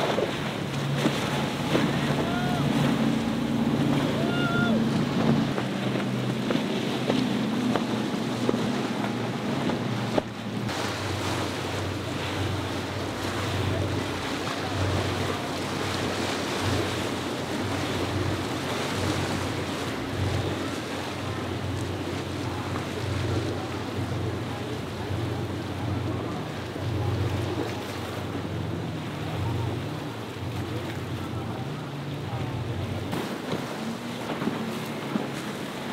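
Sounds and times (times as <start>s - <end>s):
wind on microphone: 0.0s - 12.9s
low unsteady yacht engine hum: 0.0s - 35.9s
outboard motors running at speed: 0.0s - 35.9s
water rushing: 0.0s - 35.9s.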